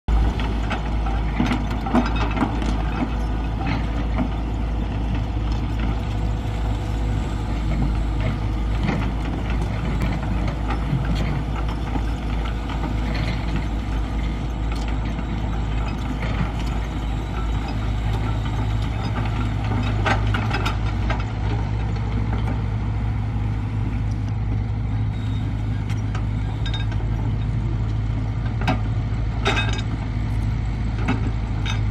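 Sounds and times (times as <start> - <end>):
excavator diesel engine running: 0.1 - 31.9
clanks and knocks: 28.5 - 30.0.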